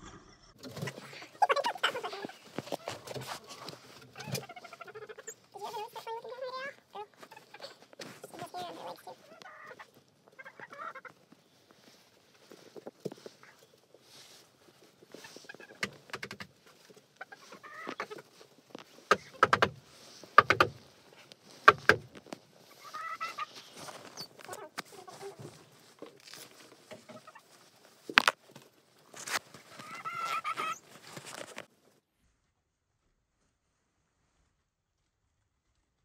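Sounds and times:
hens clucking and squawking: 0:00.6 - 0:11.4, 0:14.8 - 0:19.4, 0:22.6 - 0:26.0, 0:26.9 - 0:27.6, 0:29.6 - 0:30.9.

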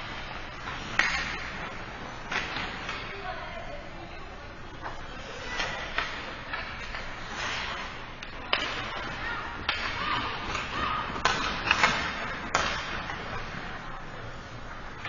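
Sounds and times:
puck striking boards: 0:00.8 - 0:01.7, 0:02.3 - 0:03.0, 0:08.4 - 0:13.3
hockey stick hitting puck: 0:00.8 - 0:03.1, 0:08.5 - 0:13.3.

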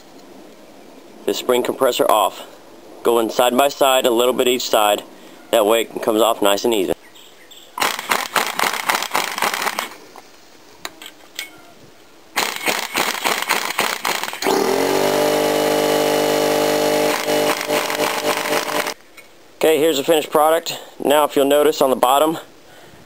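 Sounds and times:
impact wrench motor spinning: 0:07.8 - 0:10.0, 0:12.4 - 0:19.0
impact wrench hammering: 0:14.4 - 0:19.0.

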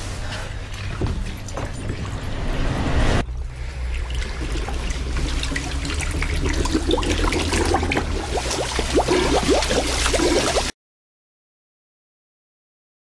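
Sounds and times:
bubbling gurgles: 0:03.3 - 0:10.7
toilet flushing: 0:03.3 - 0:10.7.

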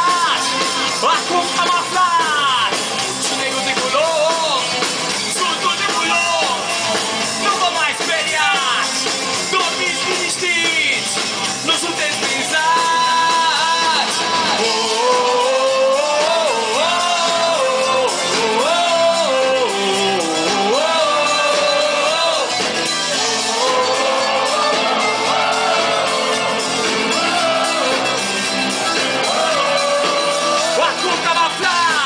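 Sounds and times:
live band playing: 0:00.0 - 0:32.0
person singing: 0:11.7 - 0:22.6, 0:23.2 - 0:28.1, 0:29.1 - 0:32.0.

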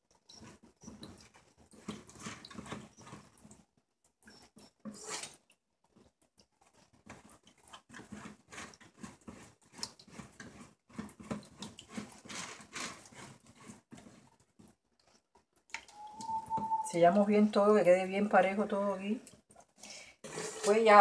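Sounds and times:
metal spatula scraping meringue: 0:00.3 - 0:03.3, 0:04.8 - 0:05.4, 0:07.7 - 0:14.3, 0:20.2 - 0:21.0.

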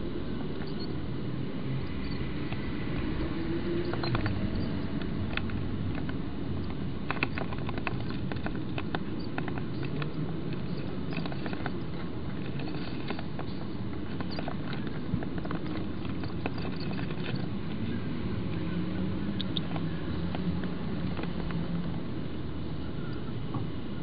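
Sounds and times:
distant traffic rumble: 0:00.0 - 0:24.0
birds scratching in nest box: 0:03.8 - 0:17.8.

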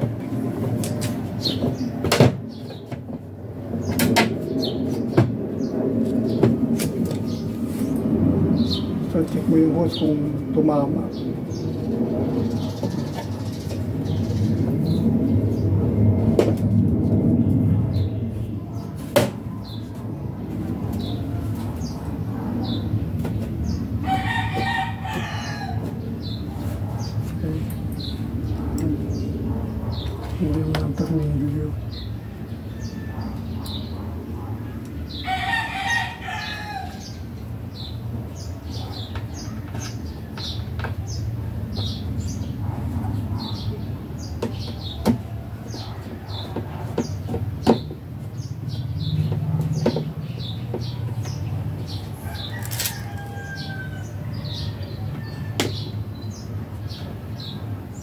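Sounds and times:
steady low rumble: 0:00.0 - 0:35.3
small birds chirping: 0:17.9 - 0:58.0
rooster crowing: 0:24.0 - 0:26.0, 0:35.2 - 0:37.2, 0:52.2 - 0:55.8.

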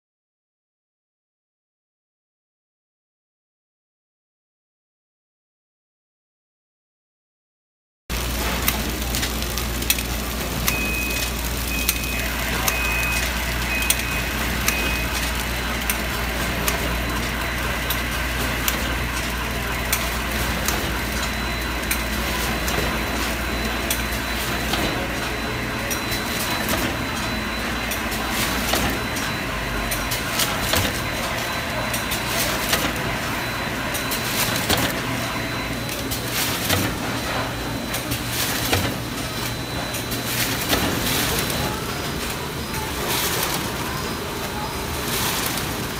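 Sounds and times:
conveyor clicks: 0:08.1 - 0:45.9
packing machinery running: 0:08.1 - 0:45.9
short beeps: 0:10.6 - 0:18.7, 0:19.9 - 0:41.8.

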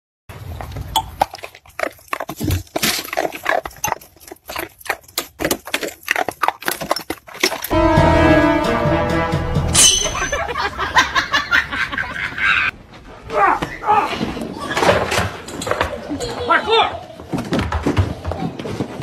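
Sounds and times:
music: 0:07.7 - 0:10.5.

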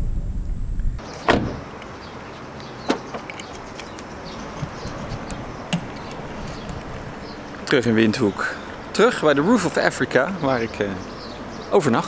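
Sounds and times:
car door shutting: 0:01.0 - 0:01.7, 0:02.8 - 0:03.4.

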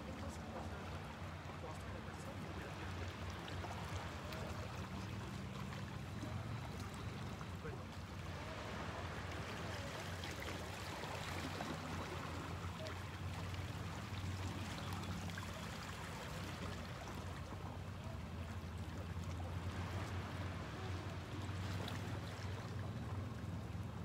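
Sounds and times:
water lapping over rocks: 0:00.0 - 0:24.0.

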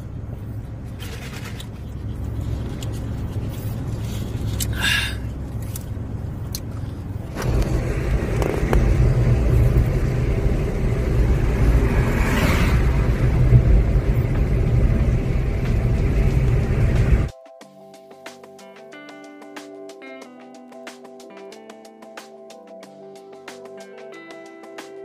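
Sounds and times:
car cabin hum: 0:00.0 - 0:17.3
engine and tyre rumble: 0:00.0 - 0:17.3.

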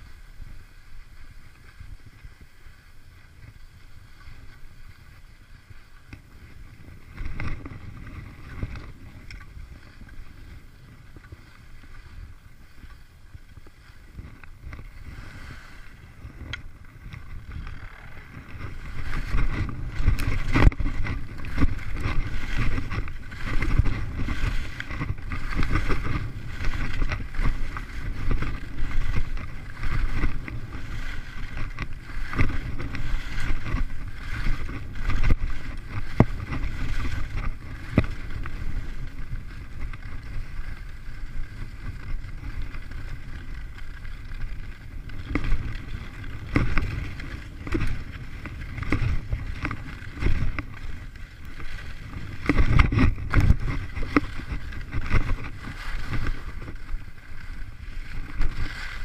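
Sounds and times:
skis scraping on packed snow: 0:00.0 - 0:59.0
wind on microphone: 0:00.0 - 0:59.0.

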